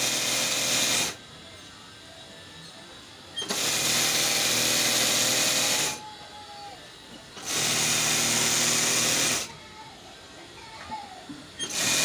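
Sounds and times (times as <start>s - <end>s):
sewing machine stitching: 3.4s - 6.0s, 7.4s - 9.5s, 11.6s - 12.0s.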